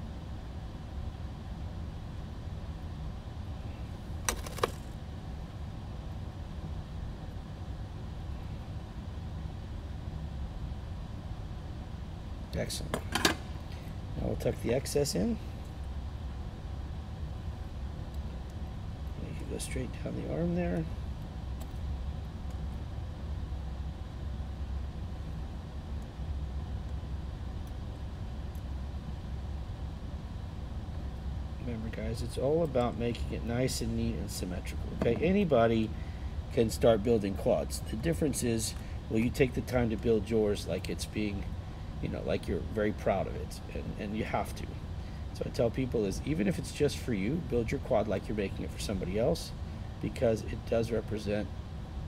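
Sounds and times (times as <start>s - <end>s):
low room tone rumble: 0.0s - 52.0s
steady low hum: 0.0s - 52.0s.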